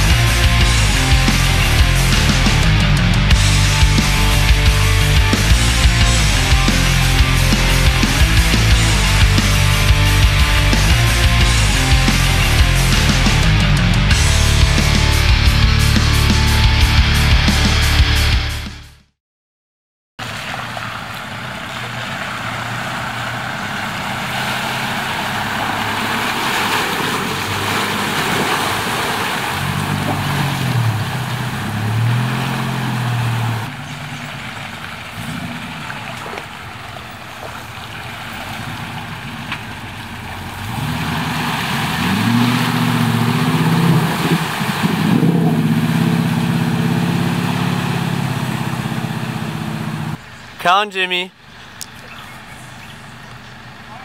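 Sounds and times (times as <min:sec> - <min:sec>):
engine revving: 0:00.0 - 0:18.9, 0:20.2 - 0:50.3.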